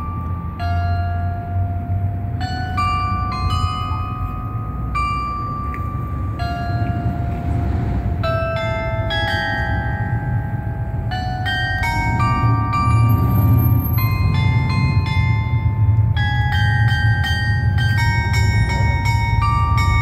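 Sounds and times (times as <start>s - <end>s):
tower bells playing a melody: 0.0s - 20.0s.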